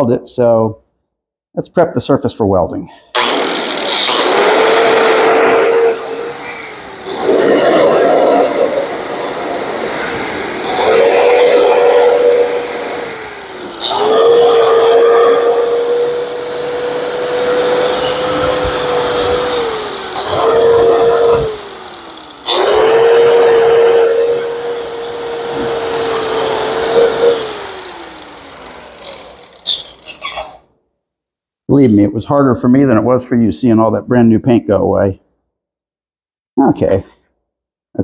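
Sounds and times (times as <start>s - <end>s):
angle grinder grinding metal: 3.2s - 30.6s.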